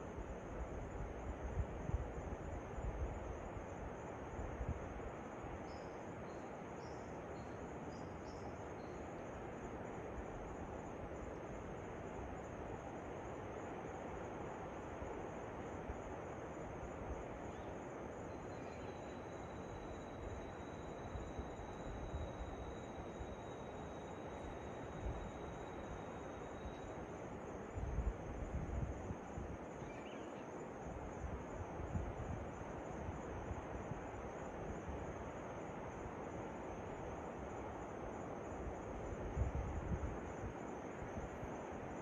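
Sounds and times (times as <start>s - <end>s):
thin steady whine: 0.0s - 42.0s
high pulsing insect drone: 5.6s - 11.6s, 15.3s - 33.7s.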